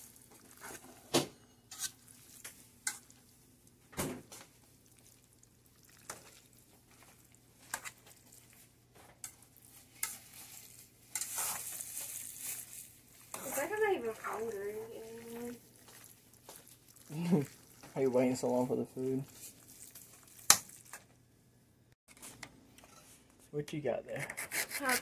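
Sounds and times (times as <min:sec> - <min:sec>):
fork stirring spaghetti in pot: 0:00.0 - 0:01.0, 0:01.6 - 0:03.4, 0:04.5 - 0:21.0
fork scraping metal pot: 0:01.7 - 0:02.1, 0:10.0 - 0:12.6, 0:24.1 - 0:25.0.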